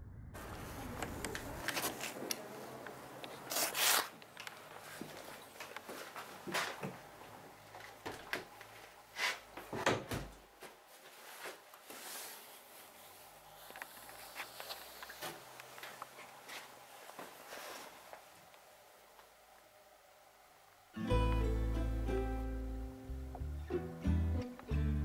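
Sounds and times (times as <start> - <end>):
rustling: 0.4 - 9.8, 10.6 - 18.4.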